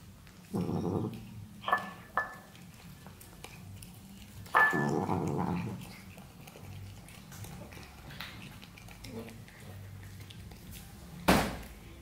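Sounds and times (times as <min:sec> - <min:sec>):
cat growling: 0:00.4 - 0:01.4, 0:03.5 - 0:09.8.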